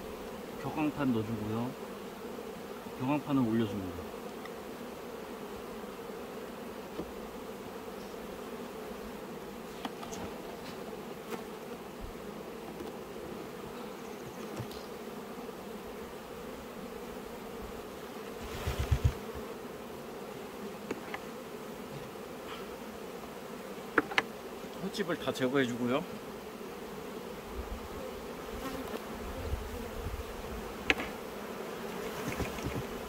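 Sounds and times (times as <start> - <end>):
honeybees buzzing: 0.0 - 33.0
knocks on wooden hive box: 23.9 - 24.3, 30.8 - 31.2, 32.2 - 33.0.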